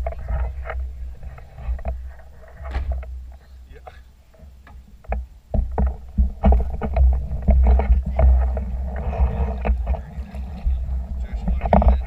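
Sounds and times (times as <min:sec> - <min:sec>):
wind rumble on microphone: 0:00.0 - 0:03.4, 0:05.0 - 0:12.0
water splashing against boat hull: 0:04.4 - 0:12.0.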